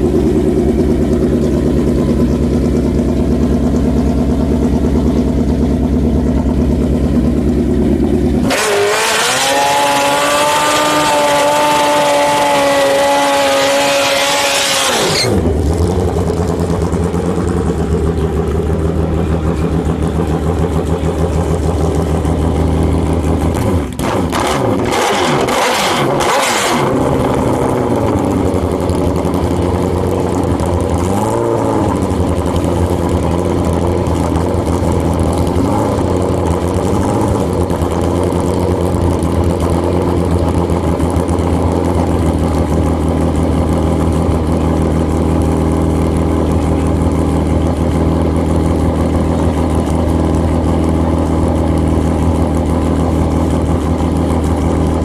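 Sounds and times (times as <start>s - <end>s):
motorcycle engine idling: 0.0s - 8.5s, 15.3s - 24.0s, 27.0s - 55.0s
motorcycle throttle revs: 8.0s - 28.6s, 29.3s - 39.0s.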